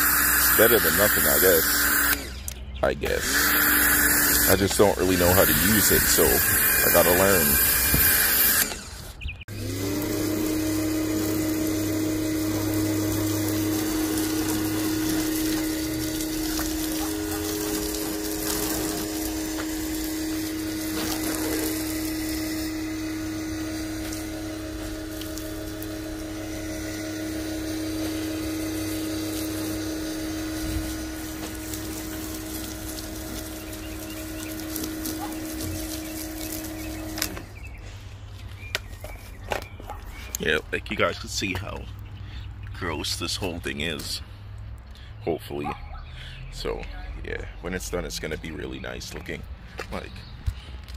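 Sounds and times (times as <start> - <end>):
water jet hissing: 0.0 - 2.3, 3.1 - 8.9, 9.5 - 37.6
pressure washer motor humming: 0.0 - 42.8.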